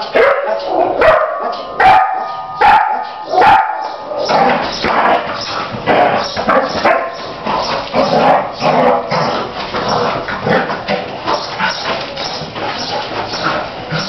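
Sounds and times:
puppy barking: 0:00.1 - 0:04.4, 0:06.5 - 0:07.2.

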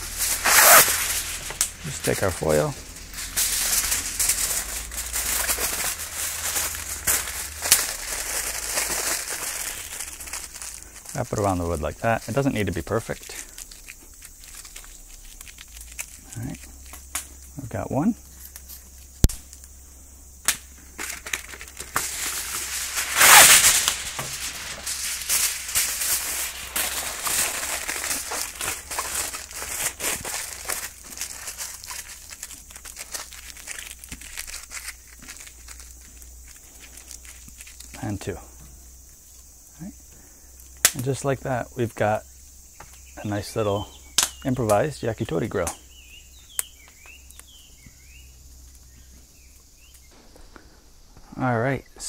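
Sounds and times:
aluminium foil crinkling: 0:00.0 - 0:17.6, 0:18.2 - 0:19.7, 0:20.5 - 0:38.4.

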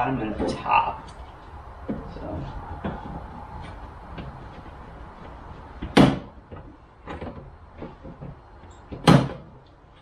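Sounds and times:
hard plastic knocks: 0:05.8 - 0:09.6.

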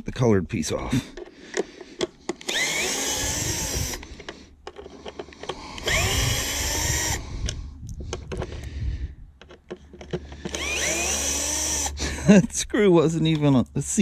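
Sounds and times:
power drill motor whine: 0:02.4 - 0:04.2, 0:05.6 - 0:07.5, 0:10.2 - 0:12.0.

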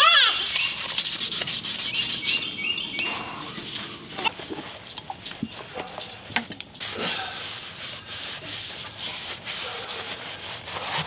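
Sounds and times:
paper towel rubbing wood: 0:00.1 - 0:02.5, 0:06.8 - 0:11.0.

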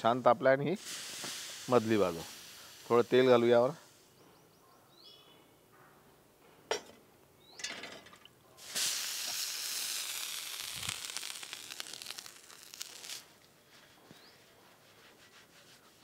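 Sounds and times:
oil sizzling on a hot griddle: 0:00.8 - 0:04.0, 0:08.6 - 0:13.3.

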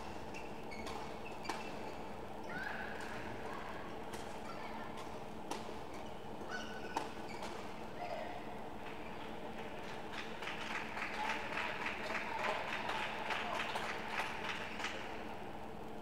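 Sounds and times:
steady hum: 0:00.0 - 0:16.0
shoes squeaking on court: 0:00.3 - 0:02.1, 0:04.2 - 0:08.2.

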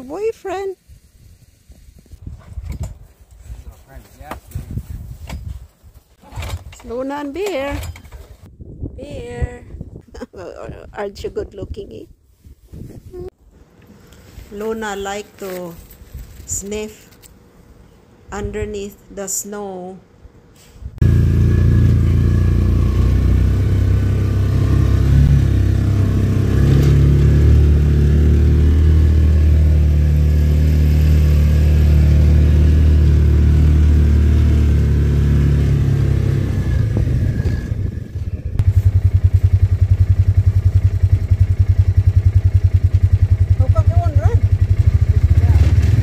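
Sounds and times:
utility vehicle engine droning: 0:21.0 - 0:46.0.

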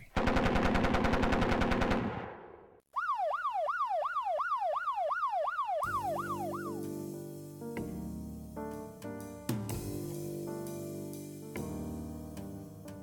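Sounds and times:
machine-gun burst: 0:00.1 - 0:02.6
police siren wailing: 0:02.9 - 0:07.0
music: 0:05.8 - 0:13.0.

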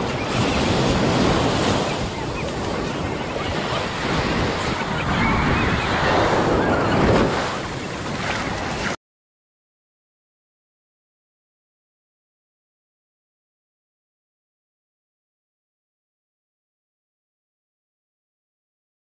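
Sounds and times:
ocean surf washing onto beach: 0:00.0 - 0:09.0.

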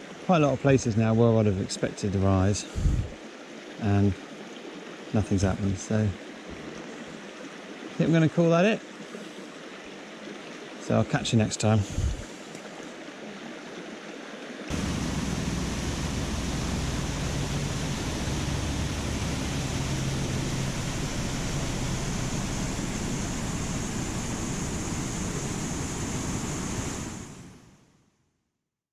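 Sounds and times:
waterfall pouring over rock: 0:14.7 - 0:27.3
river flowing over rocks: 0:14.7 - 0:27.4.

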